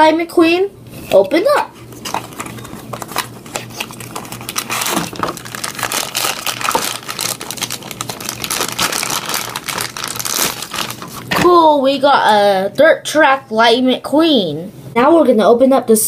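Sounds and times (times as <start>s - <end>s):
plastic bag crinkling: 1.8s - 11.4s.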